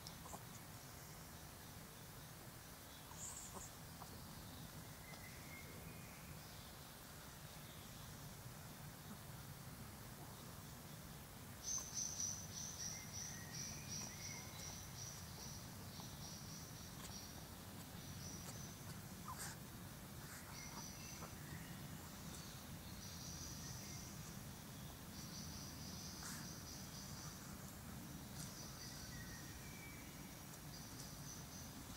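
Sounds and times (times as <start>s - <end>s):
faint whistled bird notes: 28.4s - 30.9s.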